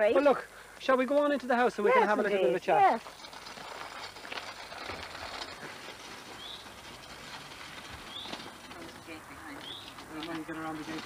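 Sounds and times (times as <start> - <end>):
small wheels rattling on gravel: 0.2 - 11.0
footsteps on gravel: 2.8 - 11.0.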